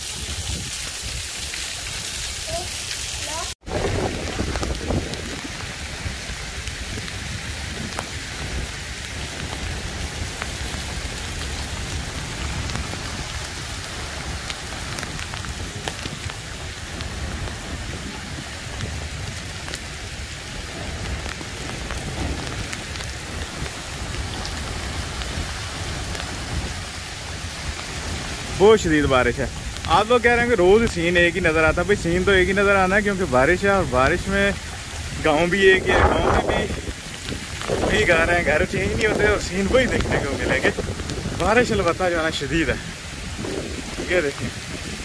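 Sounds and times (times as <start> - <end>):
heavy rain on concrete roofs: 0.0 - 45.0.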